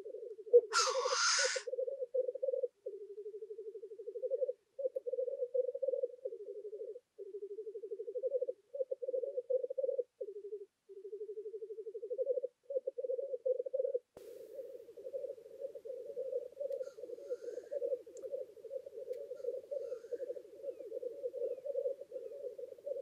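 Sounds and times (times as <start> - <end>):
grouse bubbling coos: 0.0 - 23.0.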